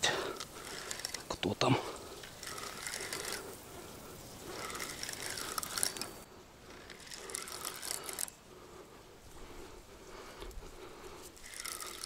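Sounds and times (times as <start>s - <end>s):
fishing reel whirring and clicking: 0.2s - 1.4s, 2.0s - 8.4s, 11.2s - 12.0s.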